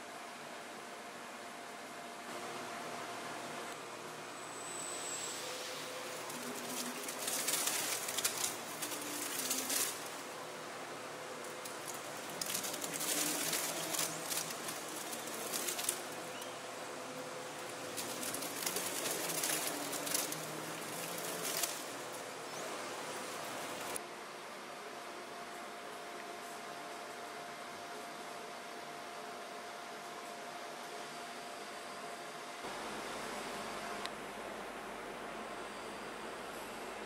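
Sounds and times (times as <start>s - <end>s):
mixing machine hum: 2.0s - 24.0s
rustling churning noise: 5.4s - 24.0s.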